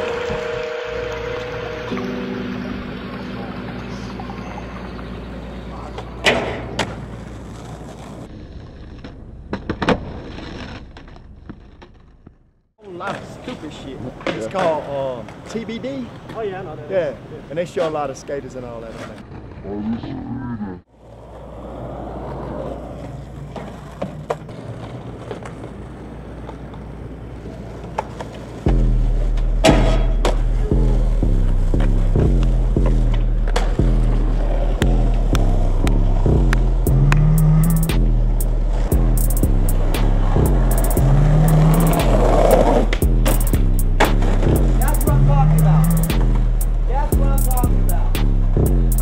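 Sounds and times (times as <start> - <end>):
skateboard rolling on pavement: 0.0 - 19.8, 20.9 - 49.0
skateboard clacks: 22.9 - 31.1.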